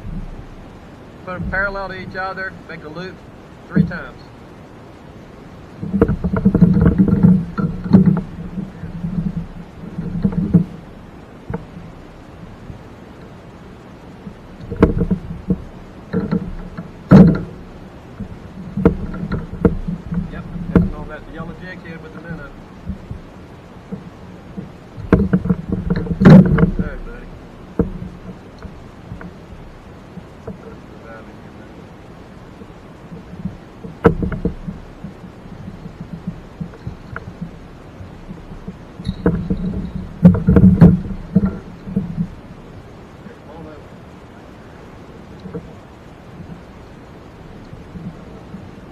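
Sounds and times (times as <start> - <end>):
hollow knocks on plastic kayak: 5.8 - 10.8, 14.3 - 21.5, 23.9 - 29.4, 33.2 - 42.4
knocks against plastic kayak: 14.6 - 17.6, 18.2 - 21.0, 24.6 - 27.0, 38.3 - 42.3.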